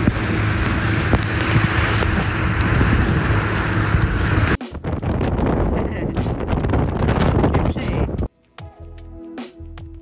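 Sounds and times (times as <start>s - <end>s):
water rushing: 0.0s - 7.8s
outboard motor running: 0.0s - 8.2s
wind buffeting microphone: 0.0s - 8.3s.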